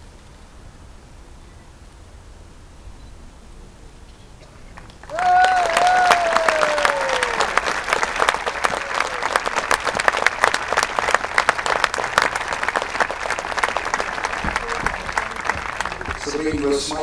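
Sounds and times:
crowd applauding: 4.7 - 17.0
high cheer: 5.0 - 16.5.

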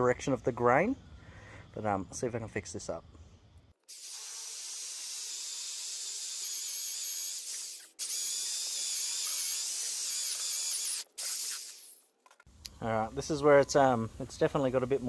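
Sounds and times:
electric drill boring into wood: 3.9 - 12.0.

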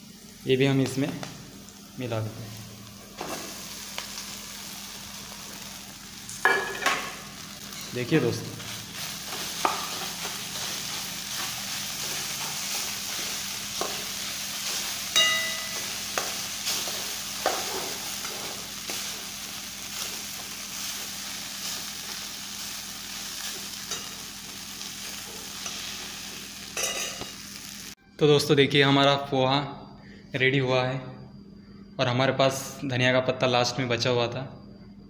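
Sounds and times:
food sizzling in a pan: 0.0 - 28.0
pan ringing: 15.1 - 16.1.

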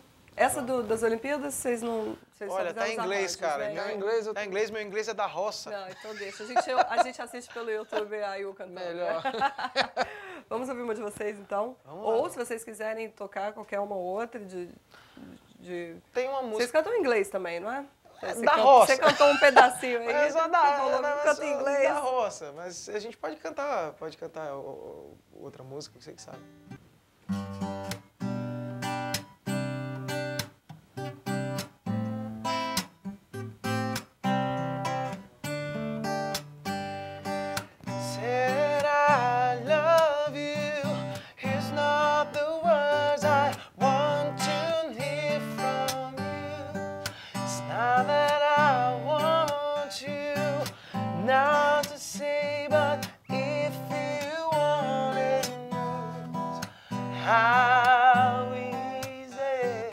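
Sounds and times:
acoustic guitar strumming: 26.3 - 59.9
man singing: 37.9 - 59.9.

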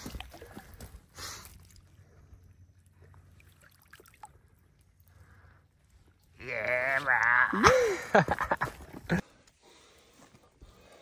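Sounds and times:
water stirring and drips: 3.0 - 5.1.

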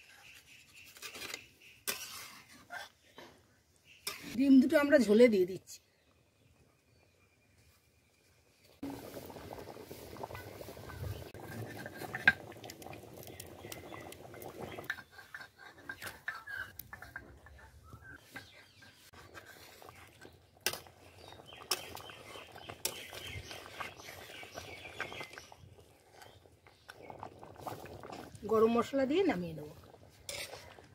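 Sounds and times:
curry bubbling in pan: 8.8 - 30.9.

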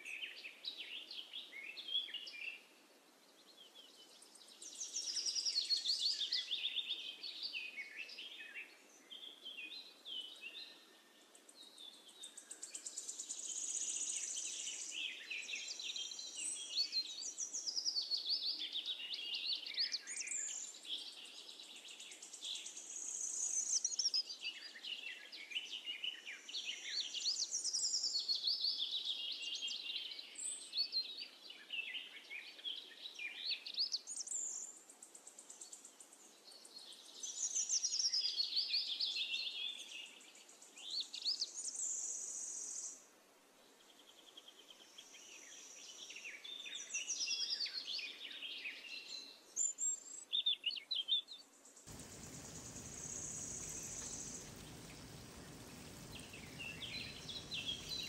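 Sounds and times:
birds chirping and singing: 51.9 - 58.0
food deep-frying in oil: 51.9 - 58.0.

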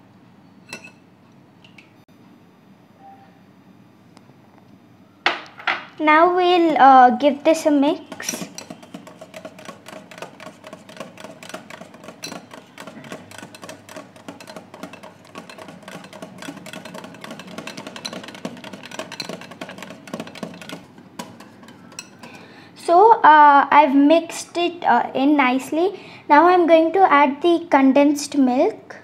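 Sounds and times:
whisk clicking against glass: 8.0 - 22.4.

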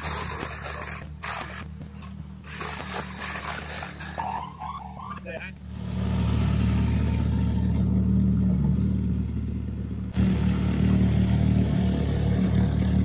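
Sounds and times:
tractor engine running: 5.5 - 13.0.

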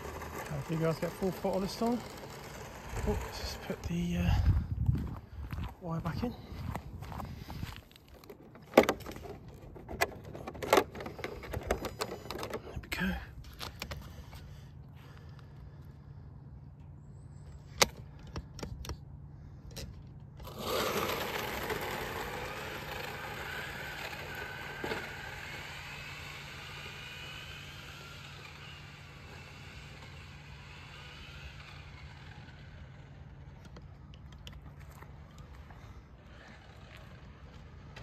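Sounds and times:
electric motor whine: 0.0 - 5.2, 20.4 - 38.0.

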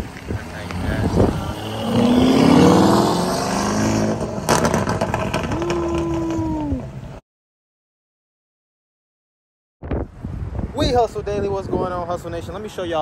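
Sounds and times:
suv engine revving: 0.3 - 6.3
sharp crack: 4.4 - 6.4.

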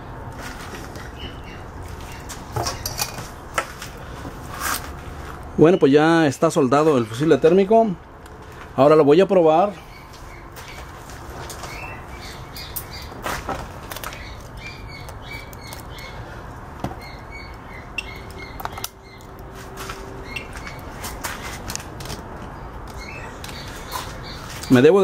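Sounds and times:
background hum: 0.0 - 24.7.

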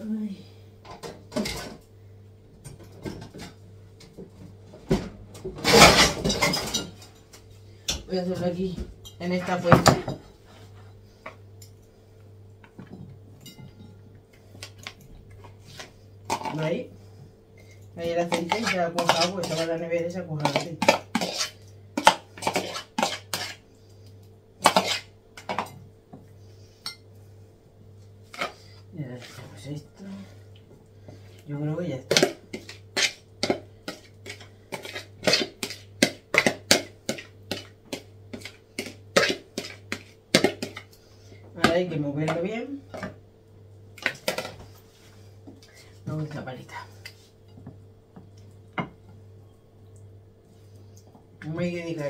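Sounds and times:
dishes scraping: 18.3 - 19.8, 20.4 - 23.6, 24.6 - 25.8.

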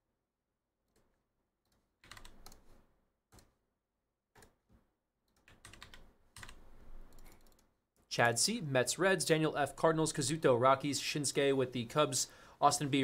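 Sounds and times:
computer keyboard typing: 1.7 - 2.7, 5.3 - 7.7.

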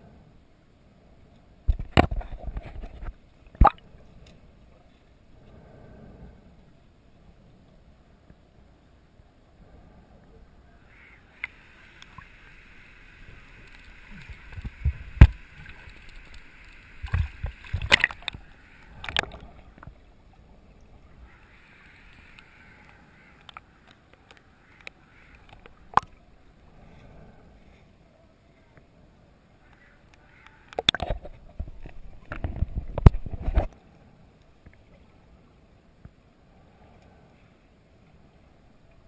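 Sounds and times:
underwater hiss: 9.6 - 19.8, 21.1 - 23.9.

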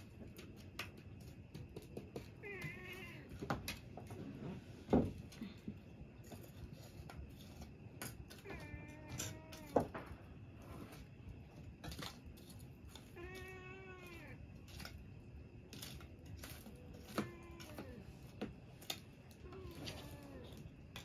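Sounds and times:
cat meowing: 2.4 - 3.4, 8.4 - 9.9, 13.0 - 14.4, 16.7 - 18.2, 19.4 - 20.7.

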